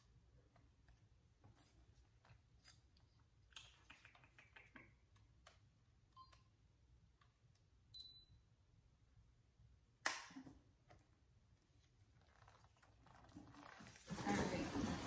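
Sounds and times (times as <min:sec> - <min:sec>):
faint electronic beep: 0:06.1 - 0:06.5, 0:07.9 - 0:08.4.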